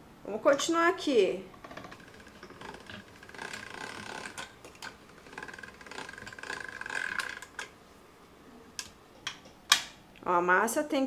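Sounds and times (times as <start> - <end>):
hand-cranked pasta machine whirring: 1.6 - 7.7.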